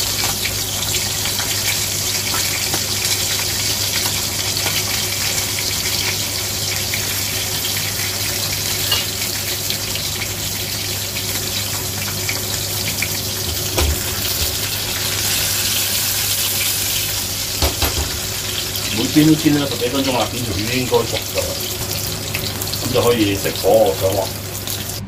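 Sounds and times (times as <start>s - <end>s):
fish sizzling in oil: 0.0s - 25.0s
wok knocking on burner: 13.4s - 14.8s, 17.6s - 18.4s.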